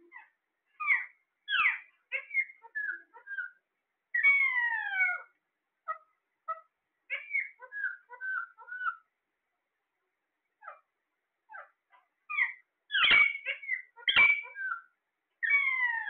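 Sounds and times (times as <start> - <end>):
parakeets chirping and squawking: 0.1 - 3.5, 4.2 - 9.0, 11.5 - 16.0.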